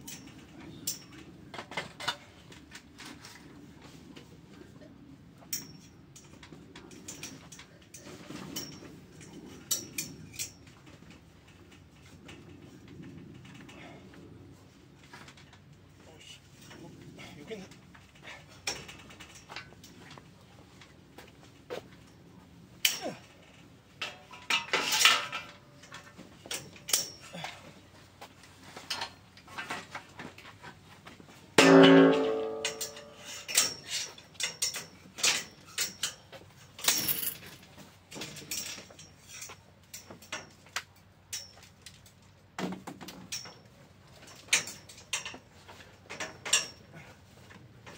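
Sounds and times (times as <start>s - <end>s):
metallic clicks and clinks: 0.0s - 1.2s, 5.5s - 10.7s, 22.8s - 27.6s, 31.7s - 42.2s, 46.1s - 47.0s
metal pipes clattering and scraping: 0.0s - 4.0s, 5.5s - 12.5s, 22.8s - 27.8s, 31.6s - 40.7s, 42.6s - 47.9s
metal channel clanging on ground: 22.8s - 23.3s, 24.0s - 27.6s, 31.6s - 40.6s, 46.1s - 47.1s.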